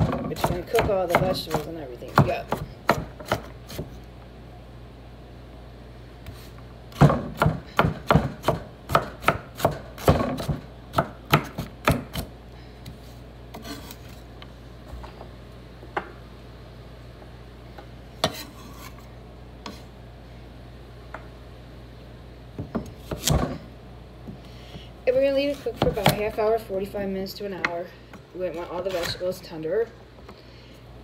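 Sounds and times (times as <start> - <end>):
knife chopping on wooden board: 0.0 - 3.9, 7.0 - 12.3.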